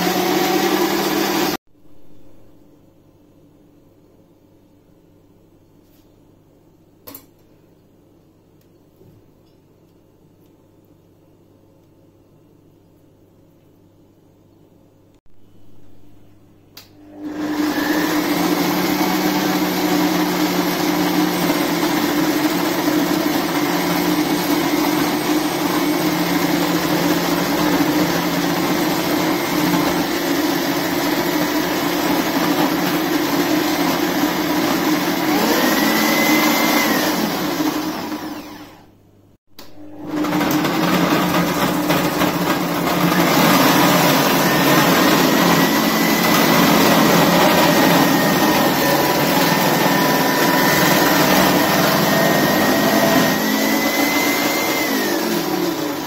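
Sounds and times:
food processor motor whirring: 0.0 - 1.6, 17.0 - 39.0, 39.6 - 56.0.

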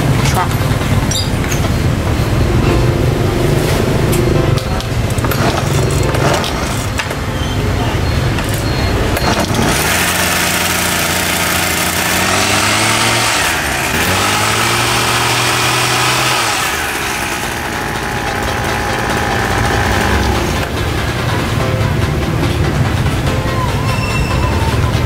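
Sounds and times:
small two-stroke engine running: 0.0 - 7.3, 8.2 - 23.4
recoil starter pull: 4.8 - 7.2, 8.3 - 21.2.

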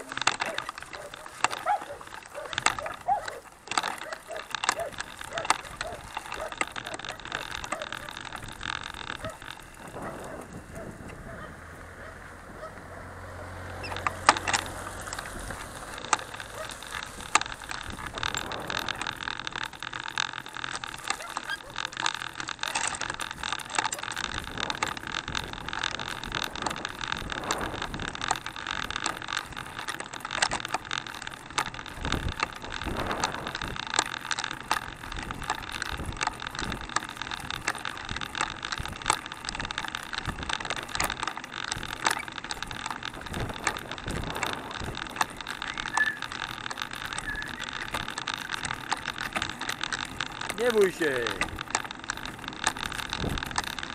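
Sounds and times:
chain and frame rattling: 0.0 - 11.5, 13.2 - 53.9
tyres rumbling on rough road: 0.0 - 53.9.

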